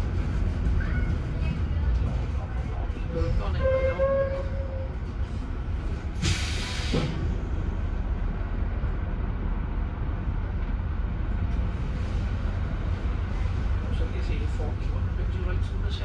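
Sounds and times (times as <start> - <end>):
bus diesel engine rumbling: 0.0 - 16.0
compressed air hiss: 6.2 - 7.1.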